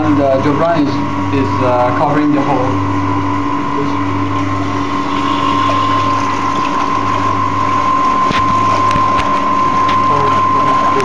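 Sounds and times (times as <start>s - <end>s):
pump humming: 0.0s - 11.0s
water gushing and splashing: 4.3s - 10.9s.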